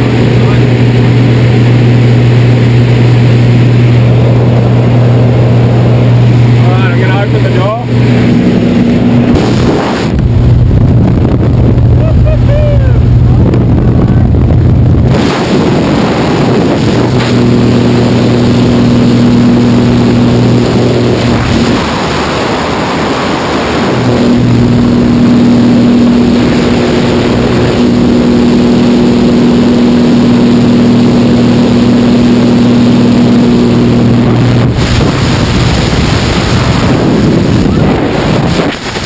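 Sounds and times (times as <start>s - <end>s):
loud wind rushing: 0.0s - 39.0s
propeller plane engine: 0.0s - 39.0s.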